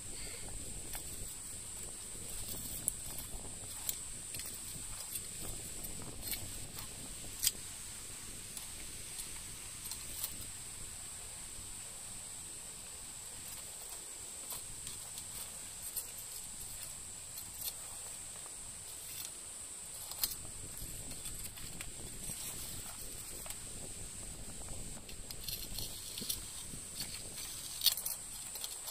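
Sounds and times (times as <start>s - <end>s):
cicadas shrilling: 0.0s - 28.9s.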